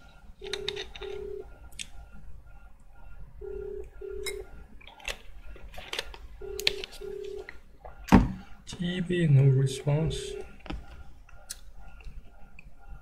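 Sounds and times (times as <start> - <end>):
telephone ringback tone: 0.4 - 1.6, 3.4 - 4.6, 6.4 - 7.5.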